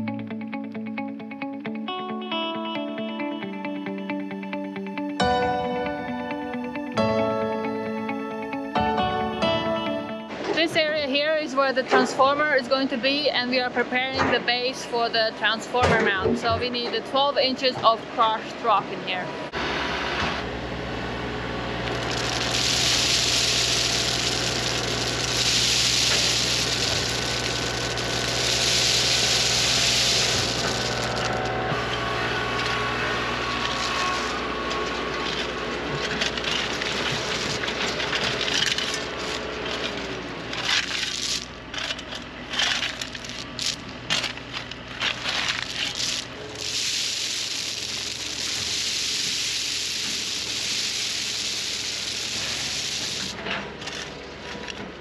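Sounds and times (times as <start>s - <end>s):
tractor engine running: 19.5s - 55.0s
crushed rock pouring from bucket: 21.9s - 31.5s, 33.3s - 40.0s, 40.6s - 41.5s, 42.6s - 54.1s
shovel scraping gravel: 21.9s - 31.6s, 32.6s - 54.8s.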